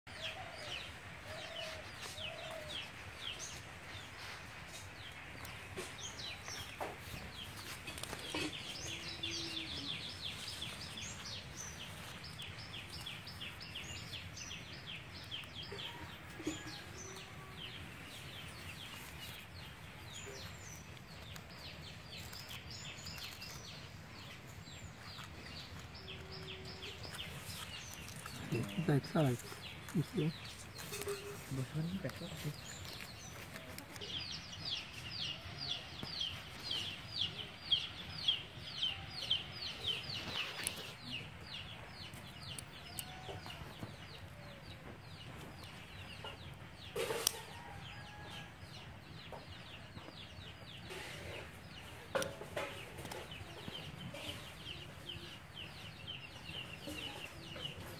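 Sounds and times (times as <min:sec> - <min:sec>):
birds chirping: 0:00.1 - 0:57.9
chickens clucking: 0:46.1 - 0:47.8, 0:50.8 - 0:55.3.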